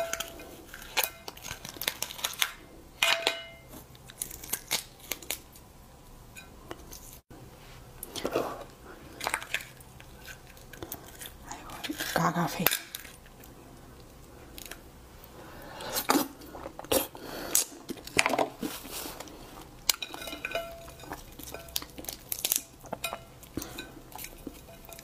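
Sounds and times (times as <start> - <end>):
crab shell crackling: 0.0 - 2.7, 3.8 - 5.7, 8.7 - 25.0
chewing: 8.0 - 12.2, 12.9 - 25.0.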